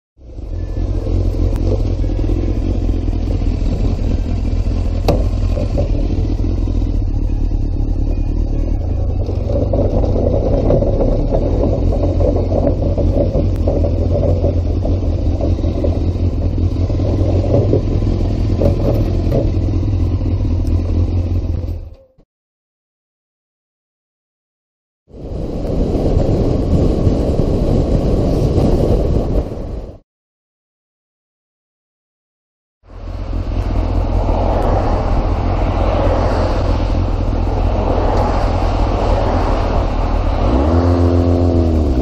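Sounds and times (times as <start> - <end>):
motorcycle engine running: 0.2 - 22.2, 32.9 - 42.0.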